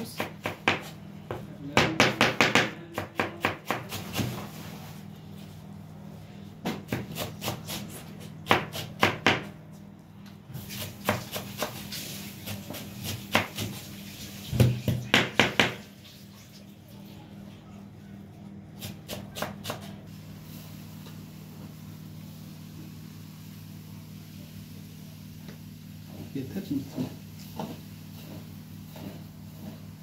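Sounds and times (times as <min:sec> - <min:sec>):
knife chopping on wooden board: 0:00.0 - 0:04.4, 0:06.6 - 0:09.6, 0:10.8 - 0:11.8, 0:12.4 - 0:13.8, 0:14.6 - 0:15.8, 0:18.8 - 0:20.0.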